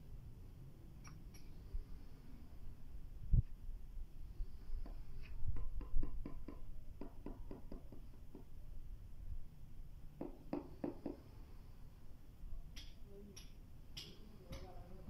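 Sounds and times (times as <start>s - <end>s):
hand tapping on ceramic tiles: 4.8s - 8.5s.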